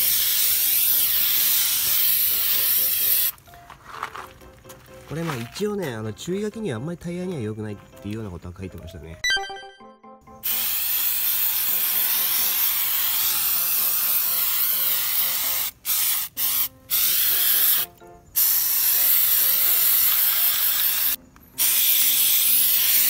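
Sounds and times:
aerosol can spraying: 0:00.0 - 0:03.3, 0:10.4 - 0:23.0.

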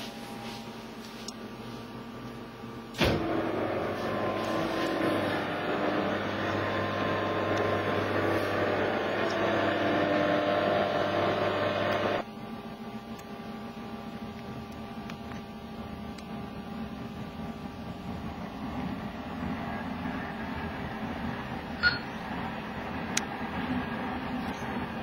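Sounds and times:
projection screen motor humming: 0:00.0 - 0:25.0.

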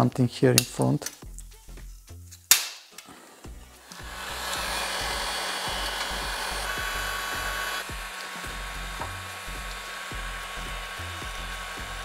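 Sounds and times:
heat gun blowing hot air: 0:03.2 - 0:12.0.

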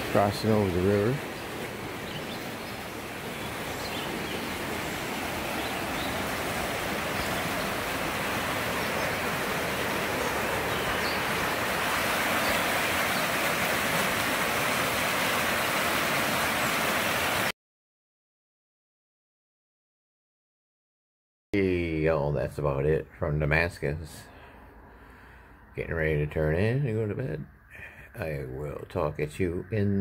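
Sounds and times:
river rushing over rocks: 0:00.0 - 0:17.5.

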